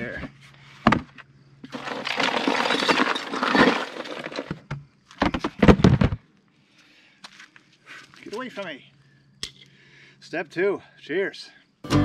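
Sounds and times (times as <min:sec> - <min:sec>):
glass bottles clinking: 0:01.7 - 0:04.5.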